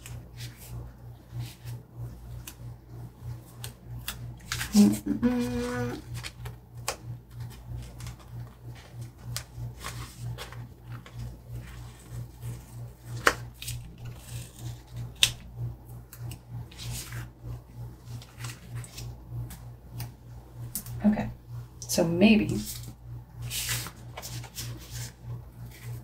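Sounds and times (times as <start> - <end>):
low pulsing hum: 0.0 - 26.0
paper sheets rustling and tapping: 4.4 - 15.4, 22.7 - 26.0.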